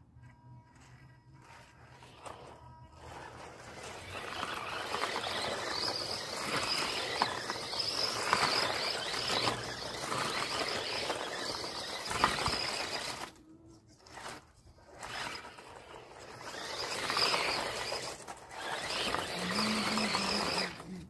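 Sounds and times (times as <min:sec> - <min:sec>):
remote-control car motor whine: 0:00.0 - 0:21.0
tyres spinning in dirt: 0:00.6 - 0:21.0
dirt and stones clicking: 0:00.7 - 0:13.4.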